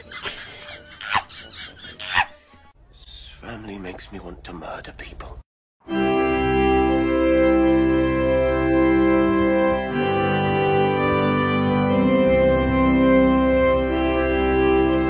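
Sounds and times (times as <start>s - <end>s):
organ sustained chords: 5.9s - 15.0s.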